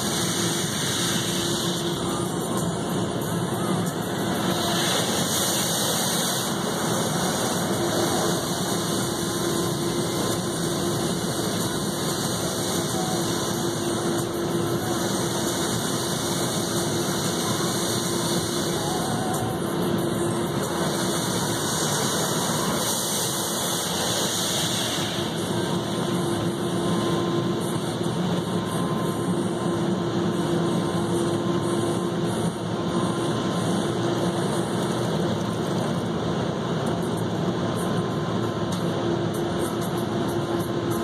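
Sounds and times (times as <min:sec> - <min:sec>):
constant mechanical hum: 0:00.0 - 0:41.0
water spraying on car body: 0:04.2 - 0:10.6.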